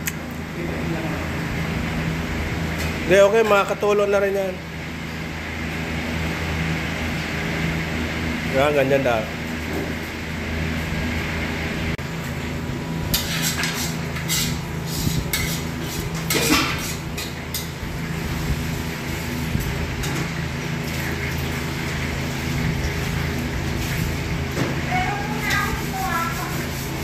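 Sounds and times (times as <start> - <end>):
steady machine hum: 0.0 - 27.0
metal pans and utensils clattering: 13.1 - 17.8.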